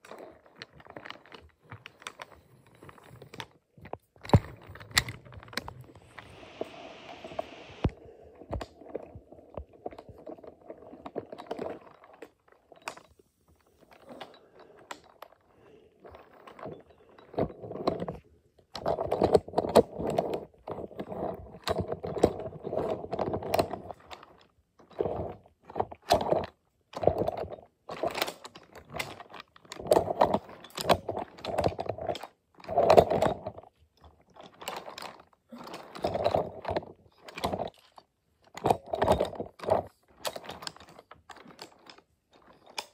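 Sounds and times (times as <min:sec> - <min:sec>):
toy train rolling on wooden track: 0:09.6 - 0:42.9.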